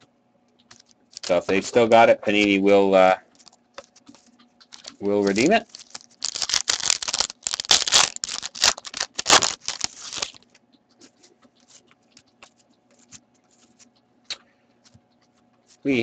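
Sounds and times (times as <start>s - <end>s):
foil wrapper crinkling and tearing: 0.7s - 2.6s, 3.3s - 10.5s.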